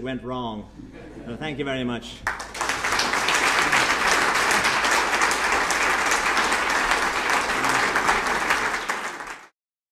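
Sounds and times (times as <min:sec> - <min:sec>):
audience applauding: 0:02.3 - 0:09.6.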